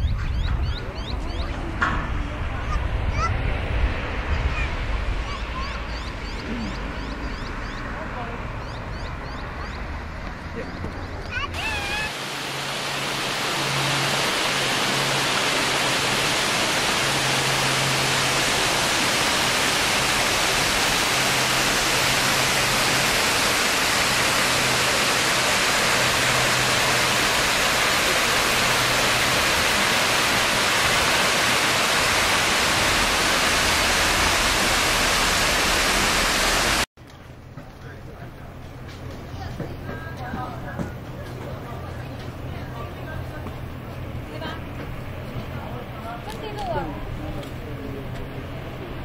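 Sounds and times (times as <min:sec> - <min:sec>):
waterfall rushing: 0:11.4 - 0:36.9.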